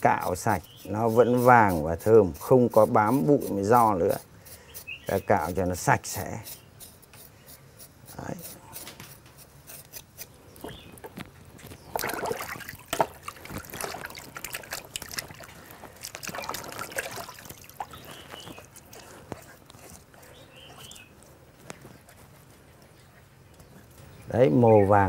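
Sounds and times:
water sloshing and splashing: 0:11.0 - 0:20.0.

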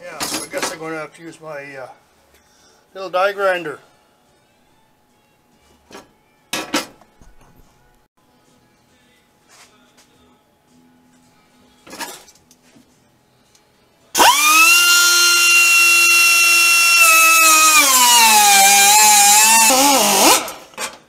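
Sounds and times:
die grinder whining: 0:14.2 - 0:20.8.

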